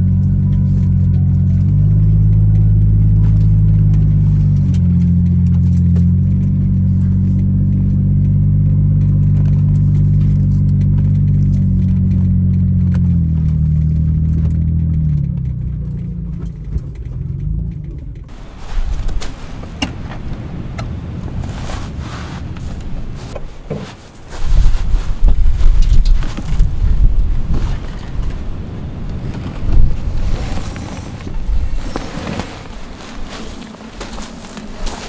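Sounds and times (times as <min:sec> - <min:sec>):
car engine driving: 0:00.0 - 0:35.0
wind noise: 0:18.2 - 0:35.0.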